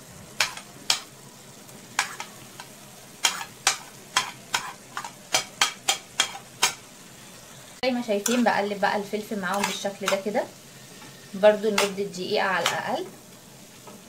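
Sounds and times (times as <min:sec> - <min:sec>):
food sizzling in pan: 0:00.0 - 0:14.0
spoon scraping and tapping board: 0:00.4 - 0:01.1, 0:03.2 - 0:06.8.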